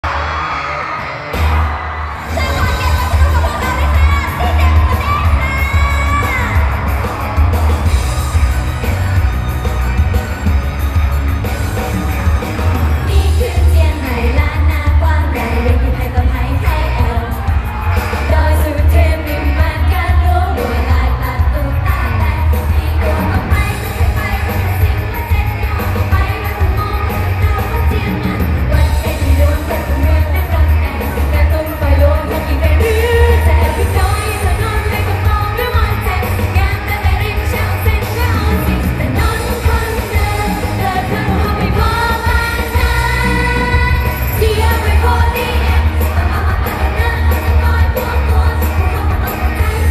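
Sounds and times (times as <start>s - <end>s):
women singing into microphones: 13.1s - 17.6s, 18.2s - 49.9s.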